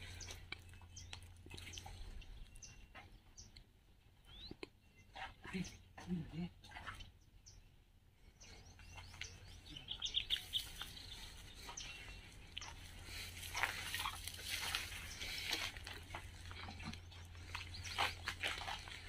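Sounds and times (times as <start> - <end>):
small animals chirping and squeaking: 8.4 - 19.0
footsteps on loose stones: 10.1 - 19.0.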